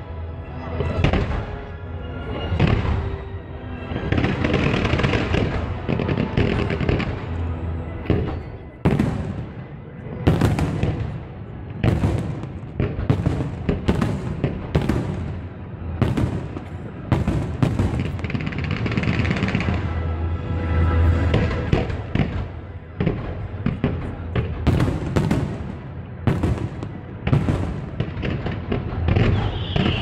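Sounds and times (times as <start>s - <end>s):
fireworks crackling: 3.8s - 9.7s, 11.9s - 20.1s, 21.1s - 30.0s.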